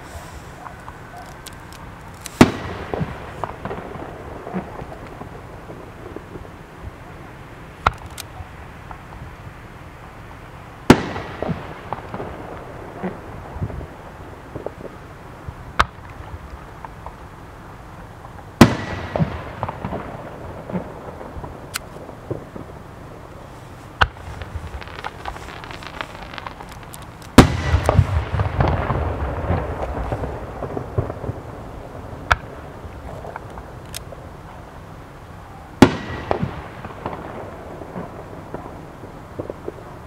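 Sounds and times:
firework shells bursting: 0:00.0 - 0:05.3, 0:23.3 - 0:30.2
firework crackling: 0:00.0 - 0:40.0.

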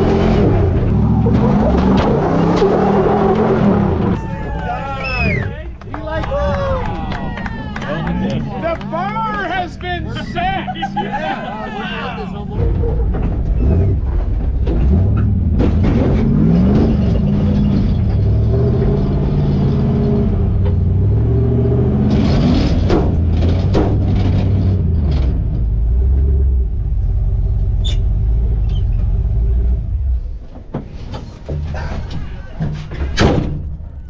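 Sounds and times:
engine revving under load: 0:00.0 - 0:04.2, 0:12.2 - 0:30.4
sharp knocks and rattles: 0:12.6 - 0:21.0, 0:22.0 - 0:26.2, 0:30.4 - 0:34.0.

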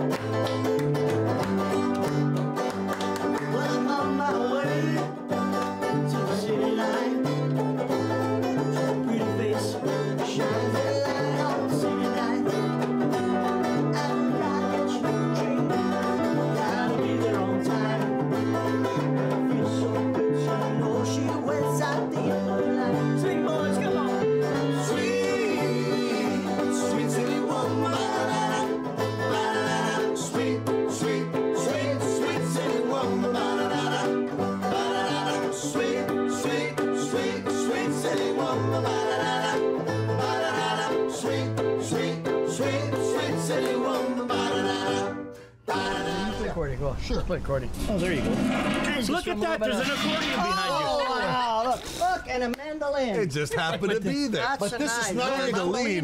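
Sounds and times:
strummed banjo: 0:00.0 - 0:46.4
men singing: 0:03.2 - 0:46.5, 0:54.6 - 0:56.0.

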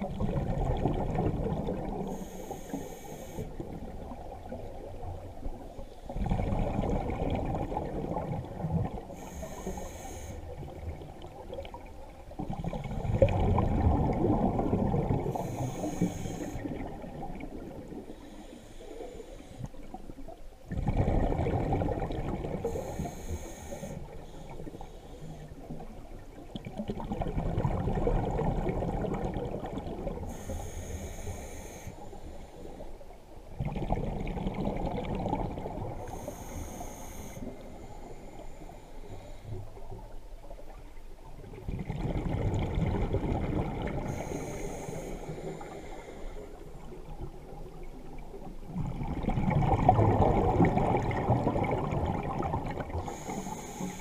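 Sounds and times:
gurgle of exhaled bubbles: 0:00.0 - 0:02.2, 0:03.6 - 0:09.2, 0:10.5 - 0:18.2, 0:19.9 - 0:23.1, 0:25.6 - 0:30.3, 0:33.5 - 0:36.3, 0:41.4 - 0:44.6, 0:46.6 - 0:53.6
regulator hissing inhalations: 0:02.1 - 0:03.6, 0:09.2 - 0:10.5, 0:15.3 - 0:16.7, 0:18.1 - 0:19.8, 0:22.6 - 0:25.5, 0:30.3 - 0:32.9, 0:36.0 - 0:39.5, 0:44.1 - 0:46.6, 0:53.0 - 0:54.0.

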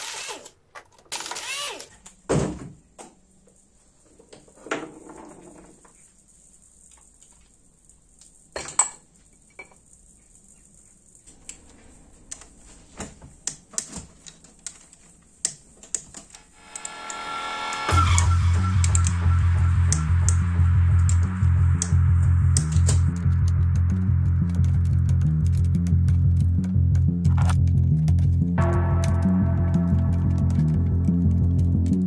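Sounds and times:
music: 0:16.5 - 0:32.0.

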